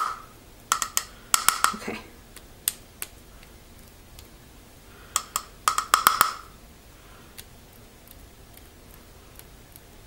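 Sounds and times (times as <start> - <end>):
paintbrush tapping sharp knocks: 0.0 - 1.8, 5.2 - 6.5.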